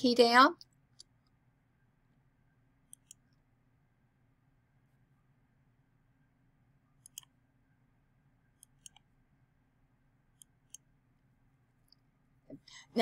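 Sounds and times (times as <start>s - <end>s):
computer mouse clicks: 2.9s - 3.4s, 7.0s - 7.4s, 8.6s - 9.1s, 10.3s - 10.9s.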